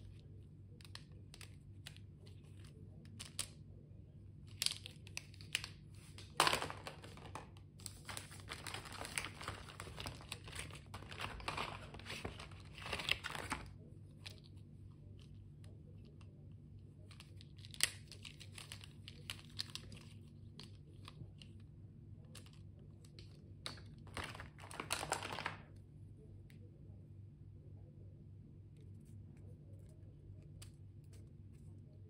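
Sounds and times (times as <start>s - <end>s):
plastic packaging crinkling: 4.6s - 14.4s, 23.7s - 25.7s.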